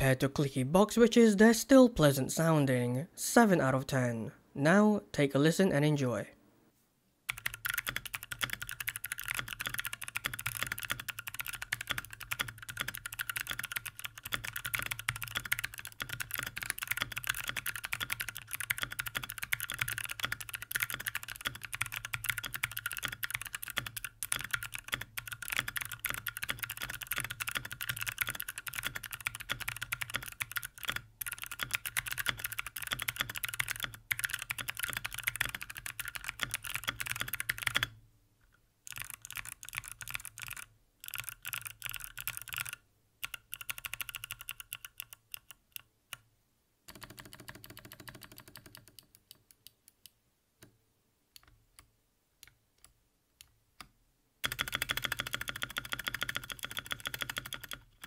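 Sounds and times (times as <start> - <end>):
clicky mechanical keyboard typing: 7.3 - 38.0, 38.9 - 46.2, 46.9 - 49.7, 54.4 - 58.0.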